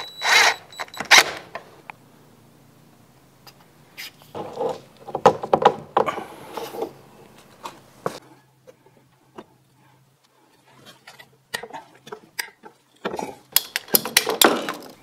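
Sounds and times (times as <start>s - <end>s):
faint low hum: 0.0s - 5.1s
sharp knocks and clattering: 4.3s - 6.2s, 11.6s - 15.0s.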